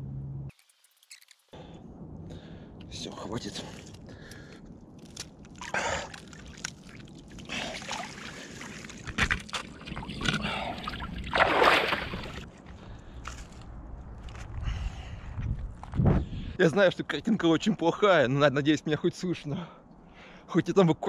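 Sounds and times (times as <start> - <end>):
icy water sloshing and splashing: 5.0 - 12.5.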